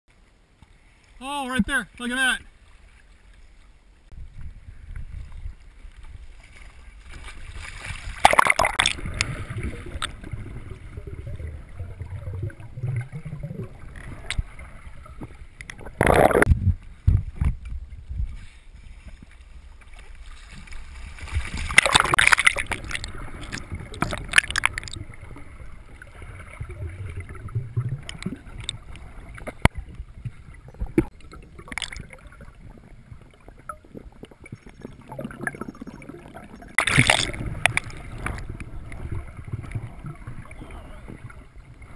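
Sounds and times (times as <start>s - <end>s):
muffled underwater sloshing: 0.1s - 41.9s
loud splashes: 7.5s - 10.2s, 20.8s - 25.0s, 36.8s - 38.2s.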